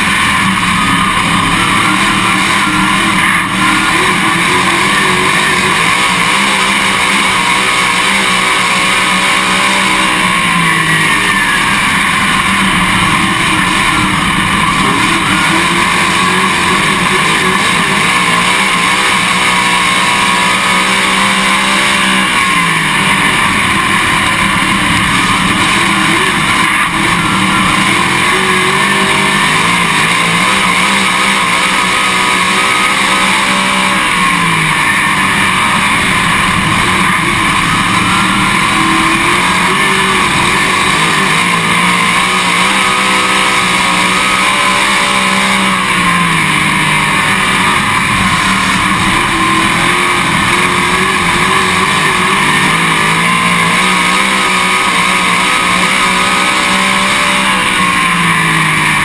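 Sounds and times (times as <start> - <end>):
race car engine running hard: 0.0 - 59.0.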